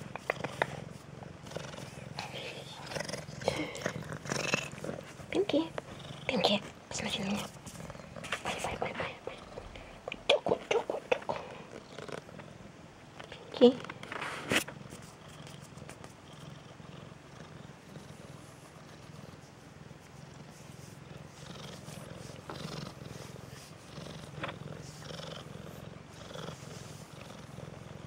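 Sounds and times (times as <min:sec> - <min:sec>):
cat purring: 0:00.0 - 0:28.0
soft rustles and taps: 0:06.6 - 0:08.8.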